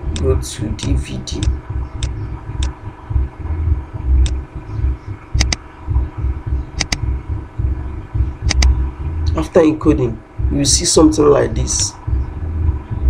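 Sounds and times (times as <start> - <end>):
low throbbing rumble: 0.0 - 13.0
computer mouse clicks: 5.4 - 5.6, 6.8 - 7.0, 8.5 - 8.7.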